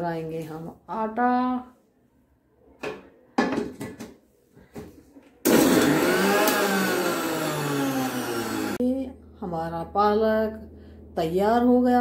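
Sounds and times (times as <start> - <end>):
electric mixer grinder running: 5.5 - 8.8.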